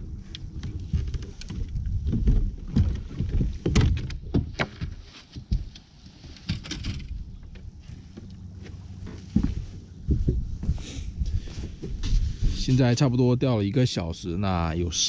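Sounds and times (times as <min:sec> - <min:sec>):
knocks and thumps on boat deck: 0:00.0 - 0:12.4
wind rumble on microphone: 0:00.0 - 0:13.4.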